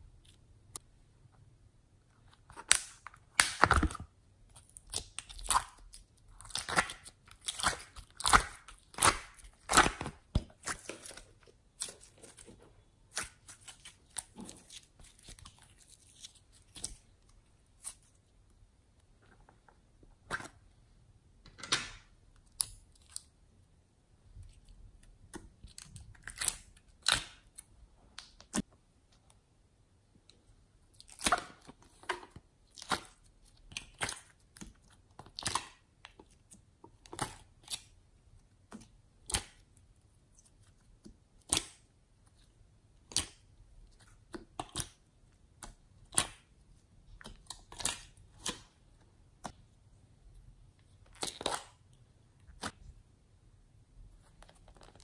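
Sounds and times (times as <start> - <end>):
slime squelching and clicking: 2.2 - 19.0, 30.8 - 49.7, 50.4 - 52.9.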